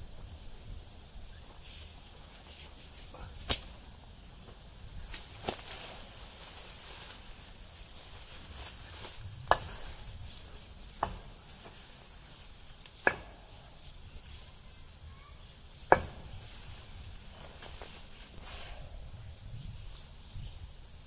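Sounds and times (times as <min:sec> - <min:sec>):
faint steady background noise: 0:00.0 - 0:21.0
sharp knocks: 0:15.9 - 0:16.4.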